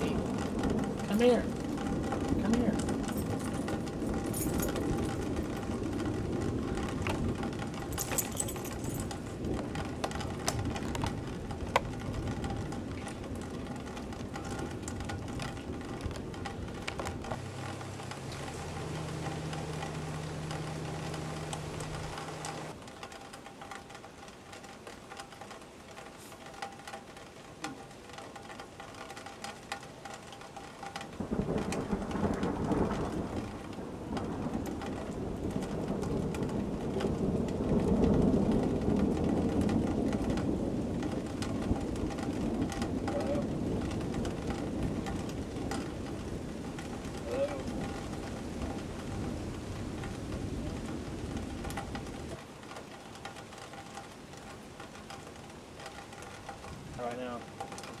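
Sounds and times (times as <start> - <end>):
low rumbling thunder: 0.0 - 22.8, 31.2 - 52.4
rain dripping: 0.0 - 58.0
steady low hum: 17.3 - 22.8.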